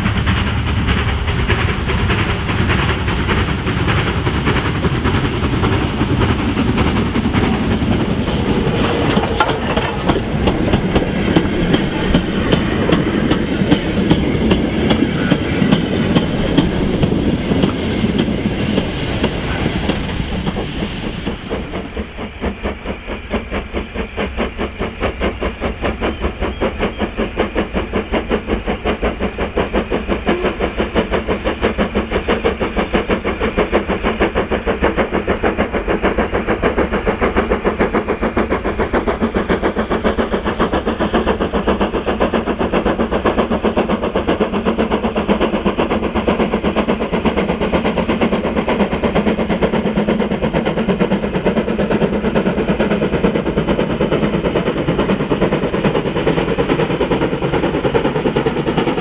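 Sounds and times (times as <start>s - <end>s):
steam locomotive exhaust beats: 0.0s - 59.0s.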